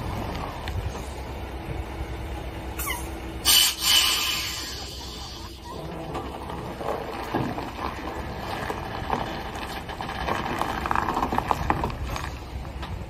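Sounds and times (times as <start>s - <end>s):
diesel truck engine rumbling: 0.0s - 13.0s
tyres crunching on gravel: 5.8s - 13.0s.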